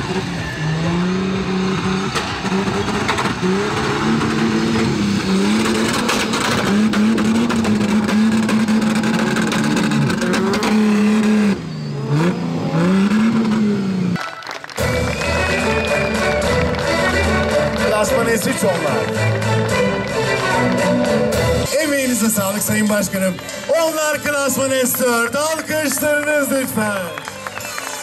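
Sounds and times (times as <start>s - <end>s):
race car engine revving: 0.0s - 14.2s.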